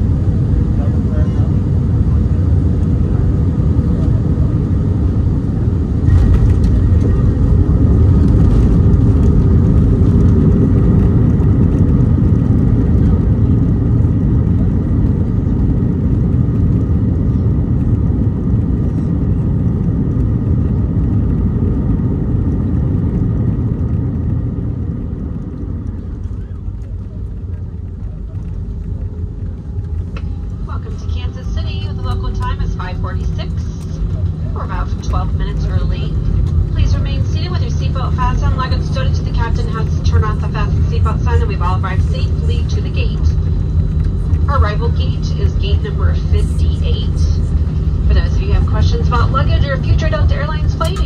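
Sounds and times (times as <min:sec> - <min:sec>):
airplane cabin rumble: 0:00.0 - 0:51.0.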